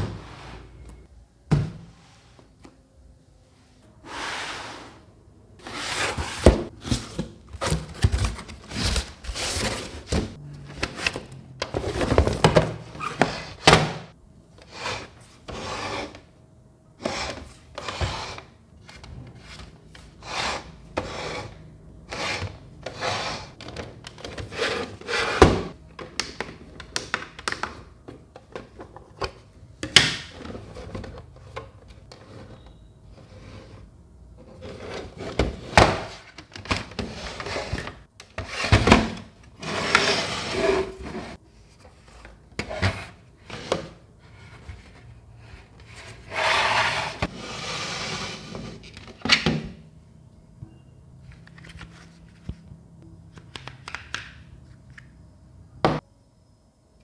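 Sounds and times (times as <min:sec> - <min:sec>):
cardboard scraping and rustling: 0:05.6 - 0:13.7.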